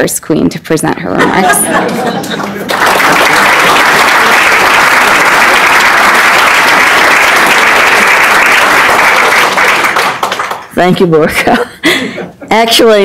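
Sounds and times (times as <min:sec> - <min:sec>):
audience applauding: 0:01.8 - 0:10.7.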